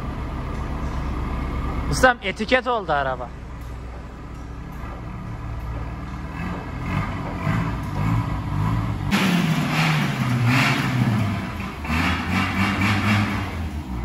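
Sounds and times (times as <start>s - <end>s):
car engine revving: 4.7s - 14.0s.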